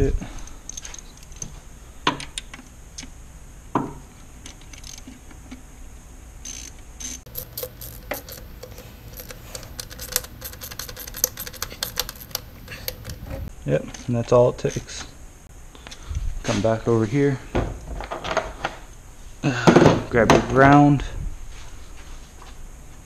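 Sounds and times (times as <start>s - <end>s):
socket ratchet clicking: 7.3s - 13.5s.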